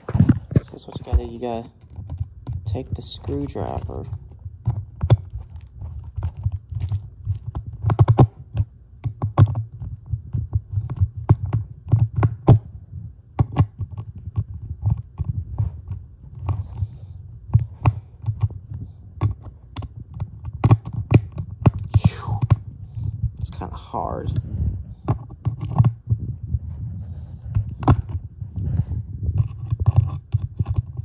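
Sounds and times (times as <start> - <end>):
low handling thumps: 0.0 - 1.7.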